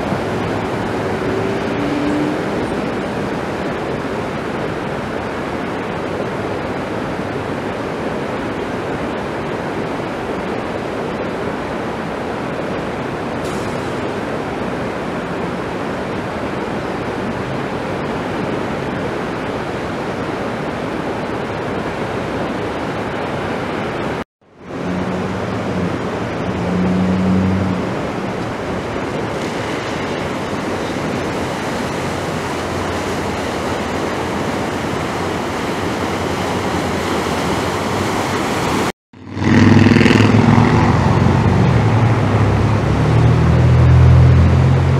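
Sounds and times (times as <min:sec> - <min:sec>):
floodwater rushing: 0:00.0 - 0:44.9
vehicle engine hum: 0:23.0 - 0:44.9.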